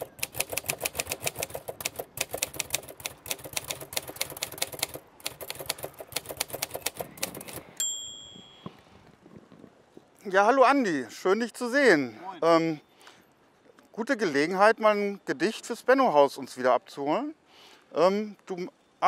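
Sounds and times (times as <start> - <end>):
typewriter keys clattering: 0.0 - 7.7
typewriter bell ding: 7.8 - 8.8.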